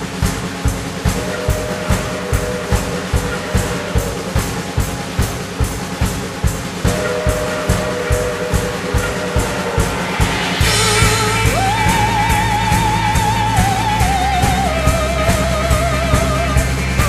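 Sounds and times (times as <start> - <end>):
drum beat: 0.0 - 17.0
high melody with vibrato: 6.8 - 17.0
bass line: 6.9 - 17.0.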